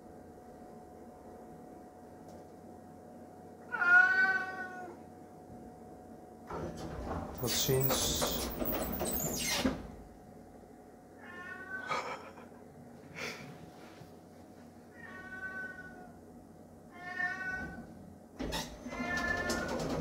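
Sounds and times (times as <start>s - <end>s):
cat meowing: 3.7s - 5.0s, 11.2s - 11.9s, 14.9s - 16.1s, 16.9s - 17.8s.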